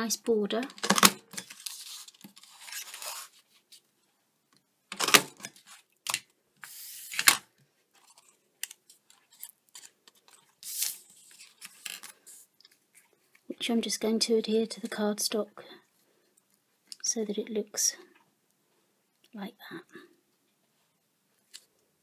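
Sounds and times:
paper sliding and rustling: 0:01.4 - 0:03.8, 0:06.6 - 0:07.4, 0:09.1 - 0:12.5.

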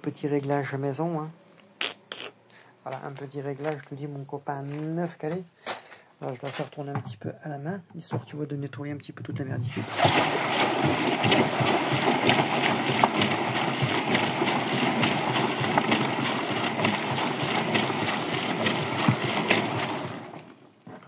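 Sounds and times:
water splashing in washer drum: 0:09.4 - 0:21.0.

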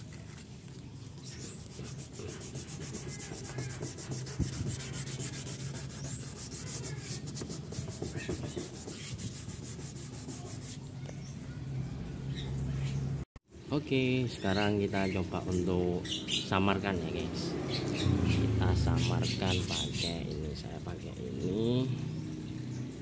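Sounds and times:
sandpaper rubbing on plastic: 0:01.2 - 0:10.9.

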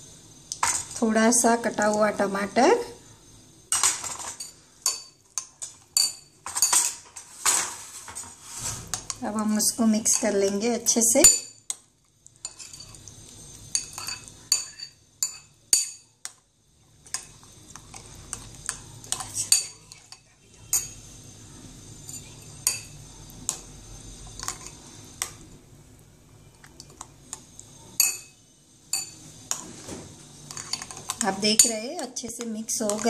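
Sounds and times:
metal spoon clinking on glass bowl: 0:03.8 - 0:07.0, 0:13.7 - 0:16.1, 0:19.1 - 0:21.0, 0:22.1 - 0:23.0, 0:28.0 - 0:29.2, 0:30.5 - 0:33.0.

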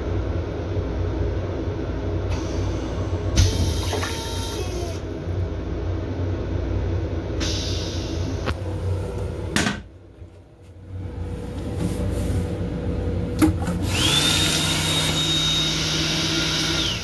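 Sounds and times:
low hum: 0:00.0 - 0:14.2
high motor whine: 0:01.4 - 0:09.6, 0:12.8 - 0:17.0
train rumble: 0:01.4 - 0:13.4.

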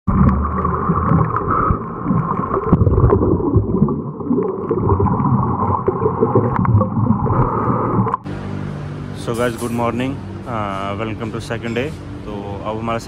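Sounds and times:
water splashing: 0:00.1 - 0:08.3.

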